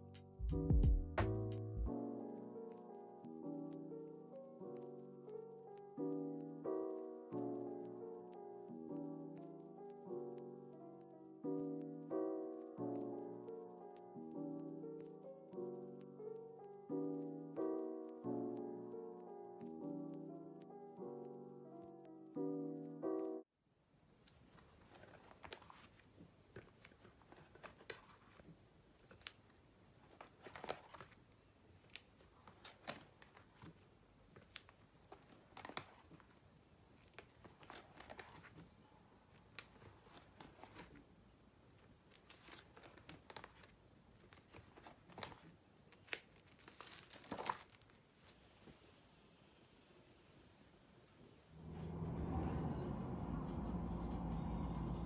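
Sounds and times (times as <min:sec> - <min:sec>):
plastic sleeve pages rustling: 0:24.2 - 0:41.1, 0:41.8 - 0:48.4
sharp plastic crackles: 0:24.2 - 0:41.1, 0:41.7 - 0:48.0.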